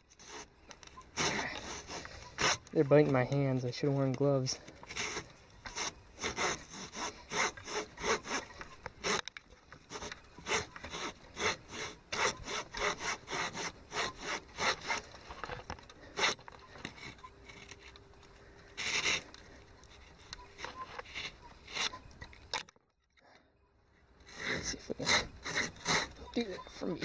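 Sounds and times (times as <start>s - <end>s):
hand saw cutting log: 0.1s - 0.5s, 1.1s - 2.8s, 4.8s - 15.2s, 15.9s - 17.8s, 18.8s - 20.3s, 21.0s - 22.0s, 24.3s - 26.4s.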